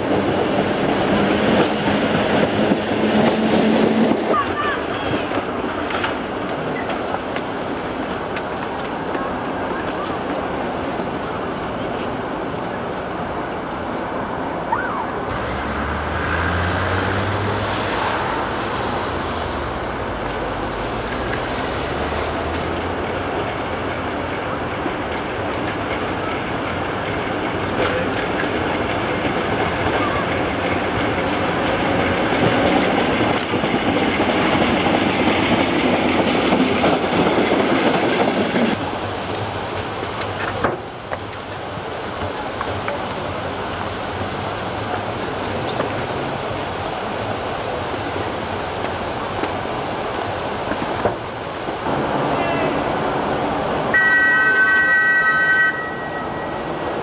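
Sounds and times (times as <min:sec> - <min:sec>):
locomotive passing: 0:00.0 - 0:57.0.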